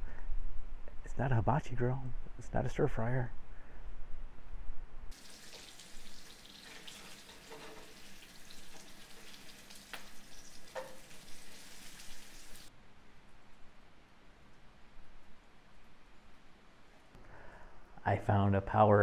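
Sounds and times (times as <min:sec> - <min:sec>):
food sizzling in a pan: 0:05.1 - 0:12.7.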